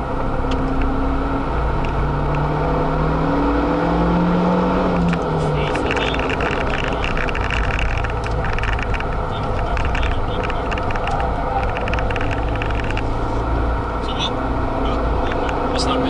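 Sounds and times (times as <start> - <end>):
car engine running: 0.0 - 16.0
road and wind noise: 0.0 - 16.0
fine crackling and rattling: 5.0 - 13.5.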